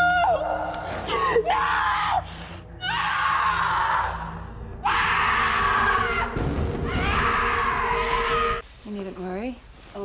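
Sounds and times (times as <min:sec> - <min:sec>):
low background music: 0:00.0 - 0:10.0.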